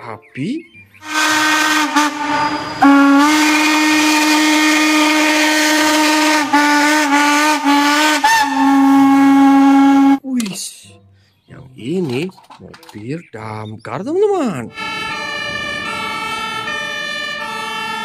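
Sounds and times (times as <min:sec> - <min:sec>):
steam train whistle blasts: 0:01.0 - 0:10.2, 0:14.7 - 0:18.0.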